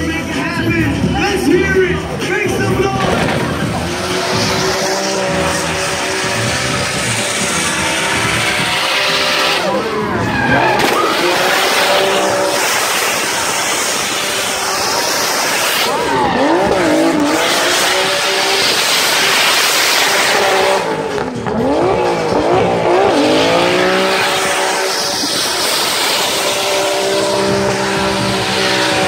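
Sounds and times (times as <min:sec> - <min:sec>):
tyres spinning and squealing: 0:01.1 - 0:20.6
car engine at high revs: 0:01.6 - 0:29.0.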